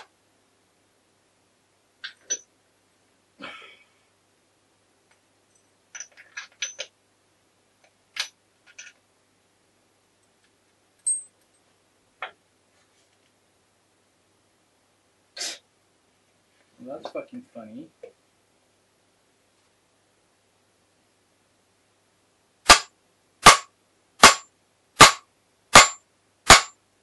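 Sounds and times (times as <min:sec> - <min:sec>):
metal parts clicking and clinking: 0:02.0 - 0:02.5, 0:05.5 - 0:06.9, 0:08.2 - 0:09.0, 0:11.0 - 0:11.6.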